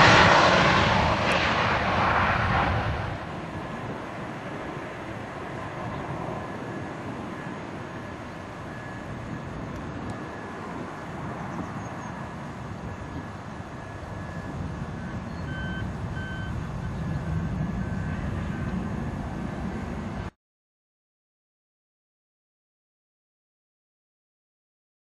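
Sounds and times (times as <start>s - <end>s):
jet rumble: 0.0s - 20.3s
faint electronic beeping: 6.7s - 9.5s, 12.8s - 18.6s.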